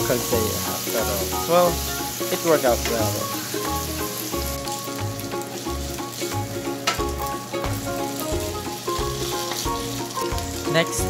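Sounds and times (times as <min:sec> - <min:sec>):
food sizzling in a frying pan: 0:00.0 - 0:11.0
music with bass beat: 0:02.9 - 0:11.0.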